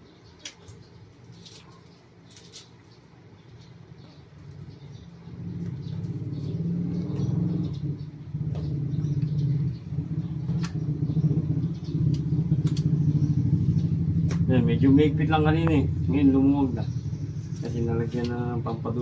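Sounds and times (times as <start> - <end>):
vehicle engine rumbling: 0.0 - 19.0
sharp clicks: 10.5 - 10.9, 11.9 - 13.0.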